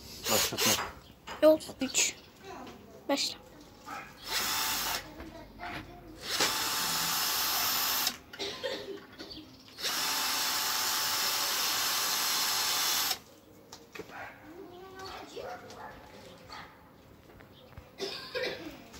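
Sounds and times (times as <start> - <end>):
cordless drill whining into wood: 4.2 - 5.0, 6.2 - 8.2, 9.8 - 13.2.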